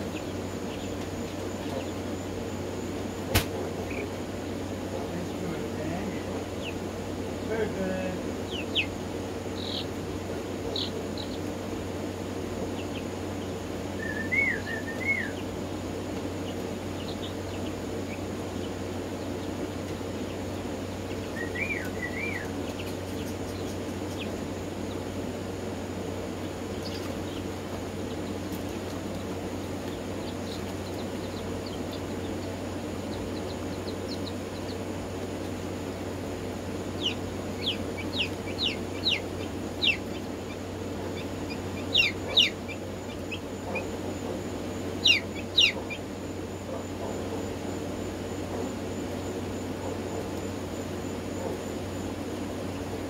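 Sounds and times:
chicken warbling calls: 0:00.0 - 0:50.5
chickens chirping and peeping: 0:00.0 - 0:53.0
low hum: 0:00.0 - 0:53.0.

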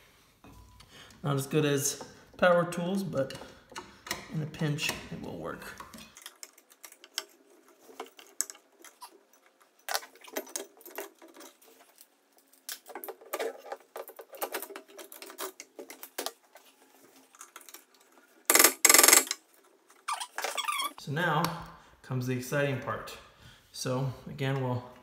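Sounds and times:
small tools clicking and rattling: 0:05.7 - 0:21.0.

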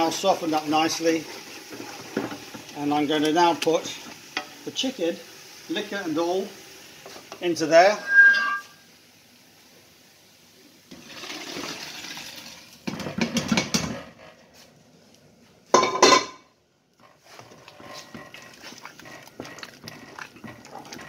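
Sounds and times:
liquid pouring and splashing into pan: 0:00.0 - 0:04.7, 0:10.9 - 0:13.6, 0:17.1 - 0:21.0
metallic clatter of cookware: 0:15.7 - 0:16.4.

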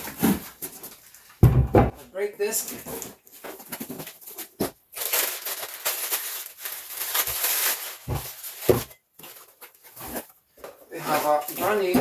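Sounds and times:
plastic bag crinkling: 0:03.0 - 0:10.2.

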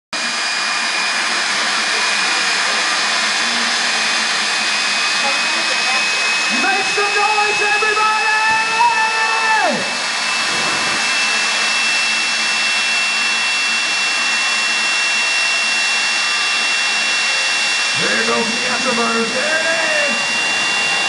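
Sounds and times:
turbine engine roaring with whine: 0:00.1 - 0:21.0
held pitched tone: 0:17.3 - 0:21.0.

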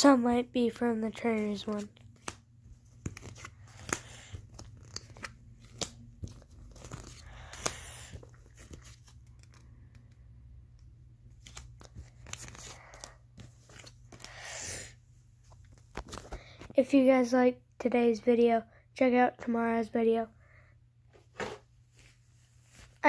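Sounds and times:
rustling of card and fabric: 0:00.0 - 0:10.4, 0:11.2 - 0:14.5, 0:15.2 - 0:16.9, 0:21.1 - 0:23.0
cards clicking and flicking: 0:01.3 - 0:10.8.

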